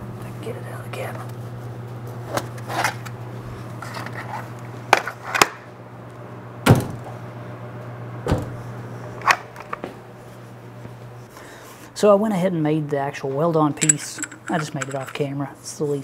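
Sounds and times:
steady low hum: 0.0s - 16.0s
metal tools knocking and clicking: 13.8s - 15.3s.

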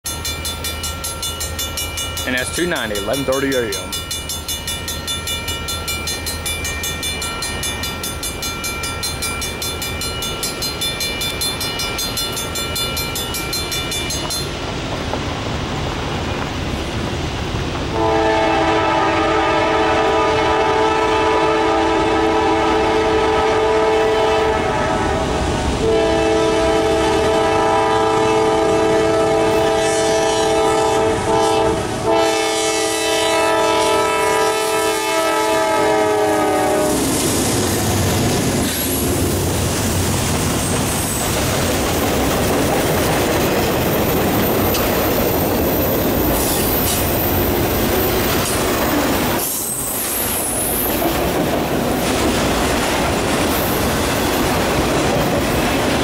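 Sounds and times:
freight train rumble: 0.1s - 56.0s
locomotive air horn: 17.9s - 37.1s.

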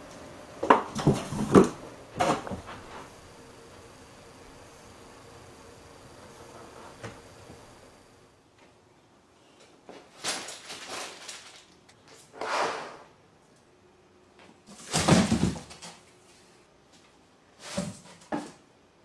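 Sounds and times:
cat rustling in cardboard boxes: 0.9s - 3.8s, 9.8s - 12.3s, 14.6s - 16.5s, 17.6s - 18.5s.

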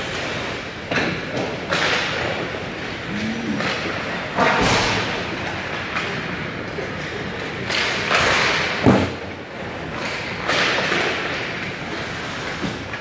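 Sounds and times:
pucks thudding on boards: 0.9s - 2.6s, 7.0s - 9.2s, 9.8s - 11.8s.

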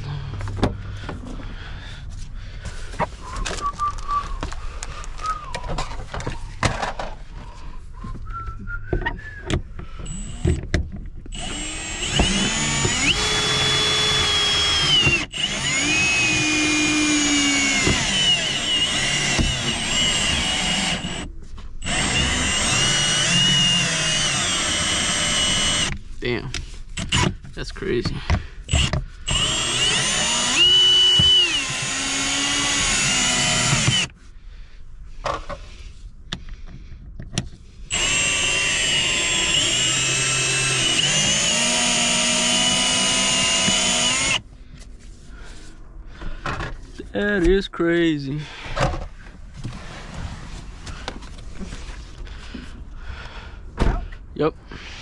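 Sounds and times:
power tool motor whine: 10.0s - 10.7s, 11.3s - 25.9s, 28.7s - 34.1s, 37.9s - 44.4s.

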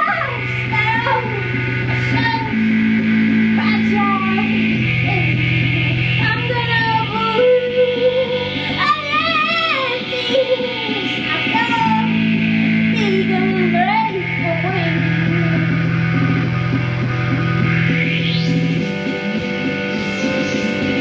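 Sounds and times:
woman singing: 0.0s - 2.8s, 3.5s - 15.8s
keyboard drone chords: 0.0s - 21.0s.

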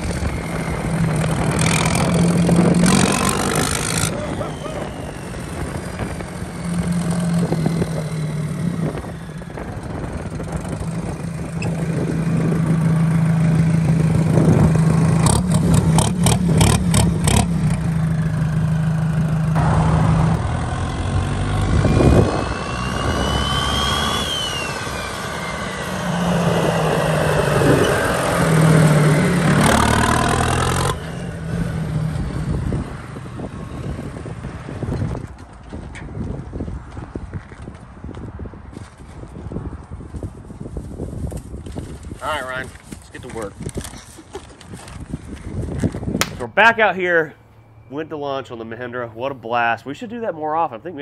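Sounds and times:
tractor diesel engine running: 0.0s - 34.8s
rising and falling whine: 0.0s - 35.2s.

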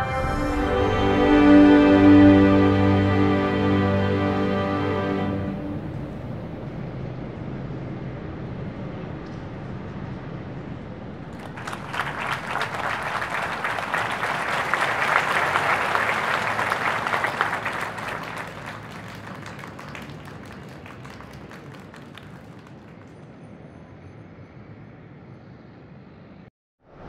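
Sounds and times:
crowd applauding: 11.3s - 23.2s.

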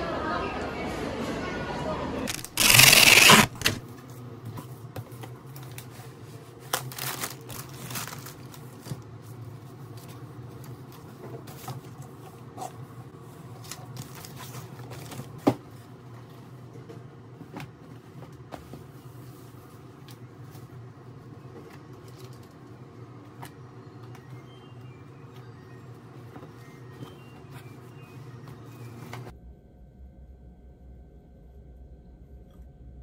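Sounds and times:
tissue paper rustling: 2.3s - 3.8s, 5.7s - 10.1s.

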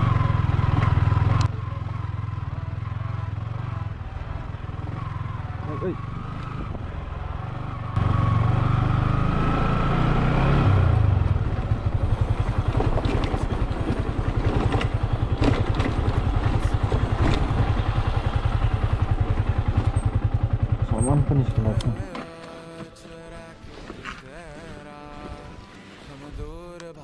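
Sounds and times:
motorcycle engine running: 0.0s - 22.1s
knocks and clatter over stones: 12.4s - 17.6s.

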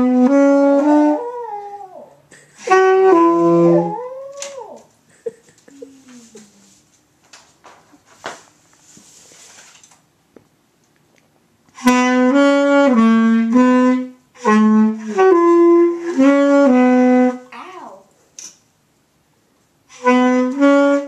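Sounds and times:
saxophone melody: 0.0s - 4.8s, 11.8s - 17.5s, 19.9s - 21.0s.

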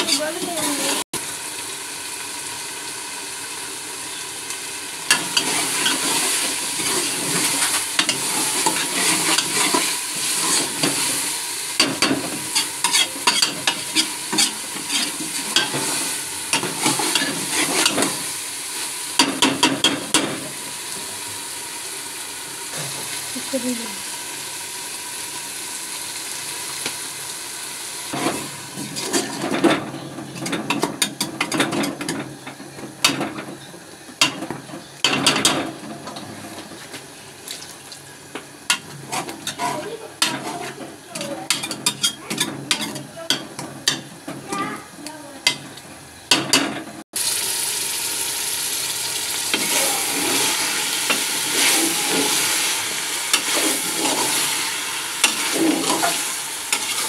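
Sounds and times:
food sizzling in a pot: 0.0s - 57.0s
spoon scraping a pot: 5.1s - 11.0s, 12.0s - 15.8s, 28.9s - 29.6s, 38.7s - 43.0s.

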